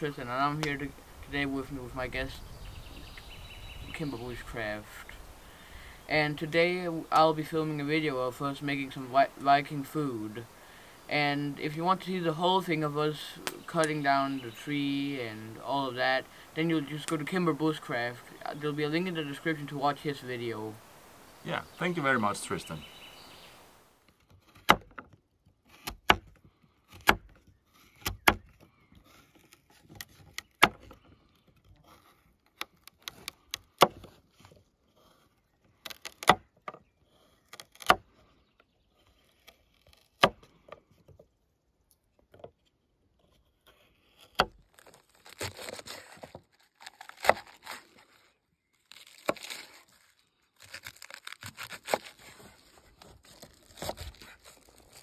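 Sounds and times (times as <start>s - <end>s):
crunchy cuts through cabbage: 43.8s - 55.0s.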